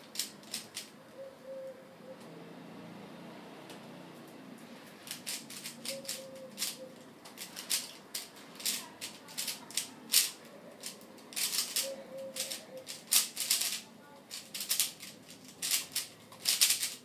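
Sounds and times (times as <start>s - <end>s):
puzzle cube clacking: 0.0s - 1.0s, 5.0s - 17.0s.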